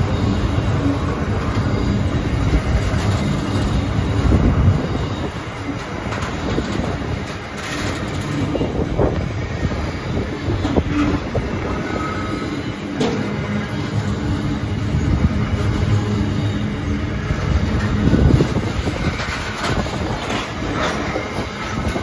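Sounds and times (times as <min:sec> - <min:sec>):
clacks over rail joints: 0:00.0 - 0:09.7, 0:12.9 - 0:13.4, 0:17.2 - 0:22.0
train wheels rumbling on rail: 0:00.0 - 0:22.0
wheel squeals: 0:00.0 - 0:22.0.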